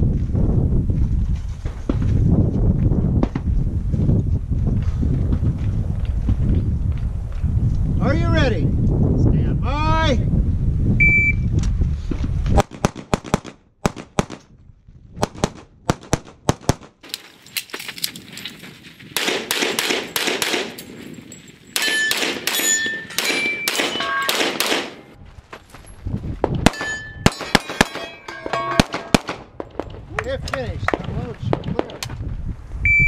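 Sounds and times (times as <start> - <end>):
pistol shots: 12.6 - 14.4, 19.2 - 20.9, 21.8 - 25.2, 26.6 - 29.8
metallic clangs of steel targets: 21.7 - 25.2, 26.7 - 29.4.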